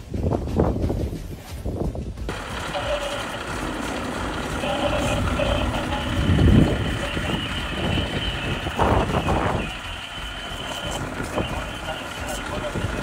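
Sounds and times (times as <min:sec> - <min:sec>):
truck engine rumbling: 0:02.3 - 0:13.0.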